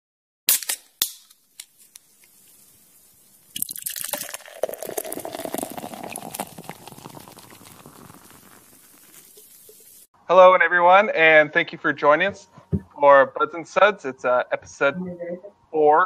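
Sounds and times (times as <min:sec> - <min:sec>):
beer pouring and fizzing in glass: 0:02.3 - 0:10.1.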